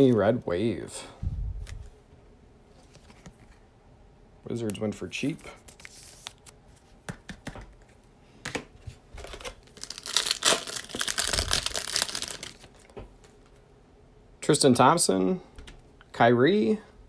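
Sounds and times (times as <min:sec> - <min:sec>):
card pack wrapper tearing: 0:09.2 - 0:12.8.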